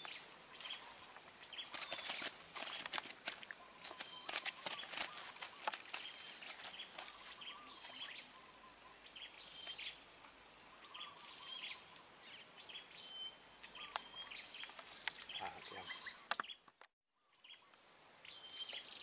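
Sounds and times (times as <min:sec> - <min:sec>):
birds chirping: 0:00.0 - 0:19.0
insects droning: 0:00.0 - 0:19.0
sharp clicks: 0:01.7 - 0:07.1.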